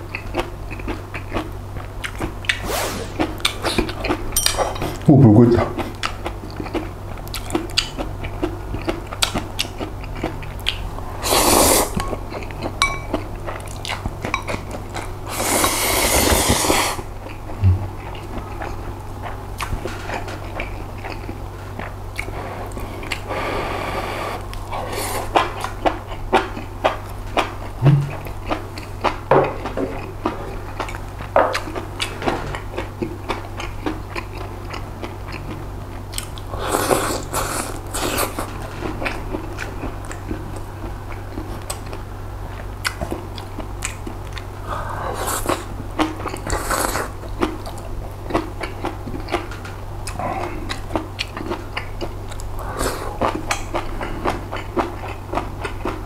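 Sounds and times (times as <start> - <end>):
wet chewing: 0.1 - 56.0
noodle slurping: 11.2 - 12.0, 15.3 - 17.0.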